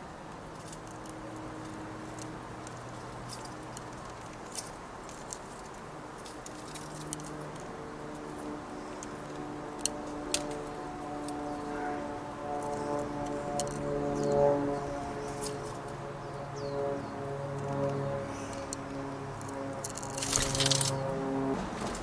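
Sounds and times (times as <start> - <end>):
bird pecking seeds on wood: 19.8 - 21.0.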